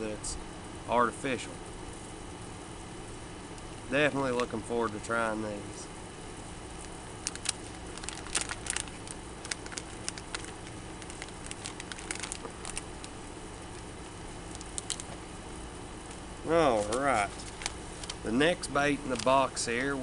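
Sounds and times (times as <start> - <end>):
steady low hum: 0.0 - 20.0
plastic packaging crinkling: 7.2 - 15.2, 16.7 - 18.4, 19.0 - 20.0.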